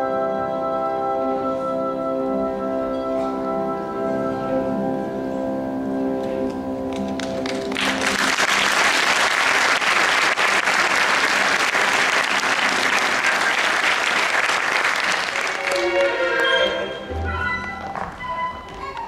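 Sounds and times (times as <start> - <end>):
orchestral music: 0.0 - 19.0
audience applauding: 7.0 - 17.0.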